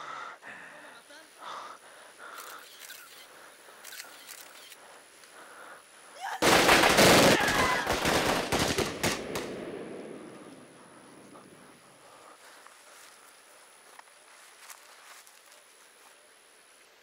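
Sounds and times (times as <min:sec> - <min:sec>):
rapid automatic gunfire: 0:06.4 - 0:10.0.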